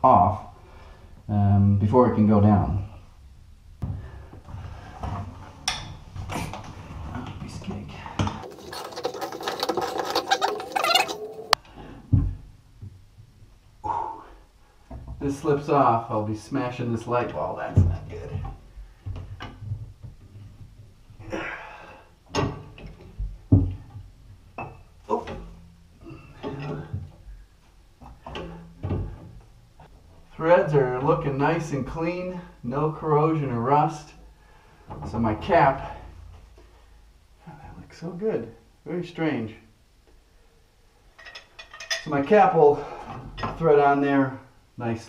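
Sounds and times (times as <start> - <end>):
squeaky scraping of turning fitting: 8.4 - 11.6
man breathing strained: 21.2 - 22.2.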